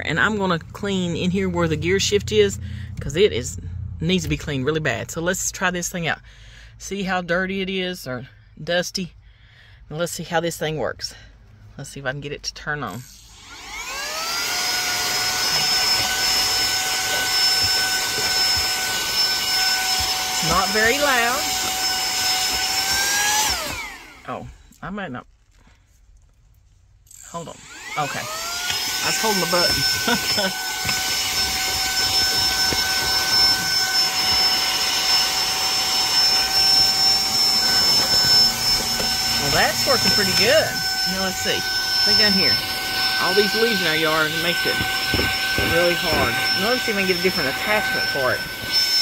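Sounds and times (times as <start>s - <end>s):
handheld vacuum cleaner whine: 13.0s - 24.4s, 27.1s - 49.0s.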